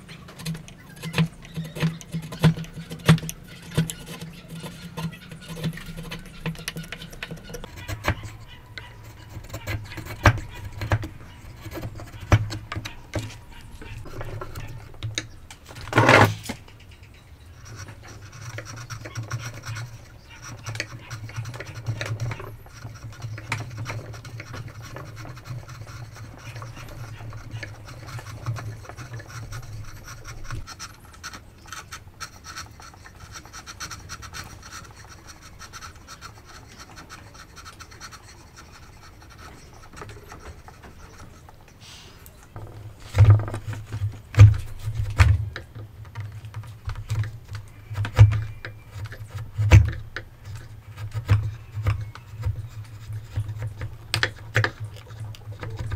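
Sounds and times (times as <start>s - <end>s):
chisel scraping wood: 0.0s - 16.6s, 17.5s - 55.9s.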